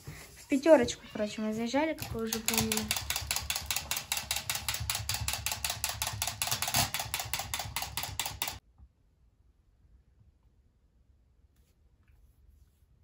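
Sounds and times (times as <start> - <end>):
rapid mechanical clicking: 2.0 - 8.6.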